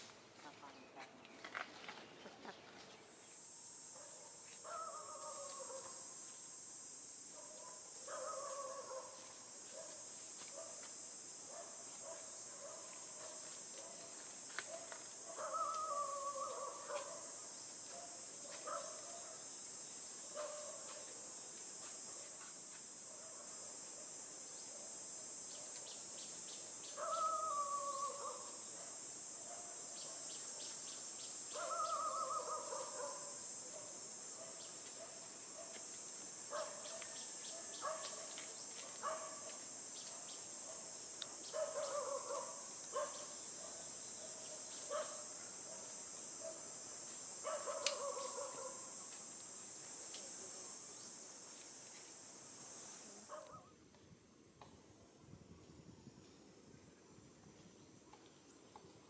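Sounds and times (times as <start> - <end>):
high-pitched insect drone: 14.6 - 22.7, 25.4 - 46.3.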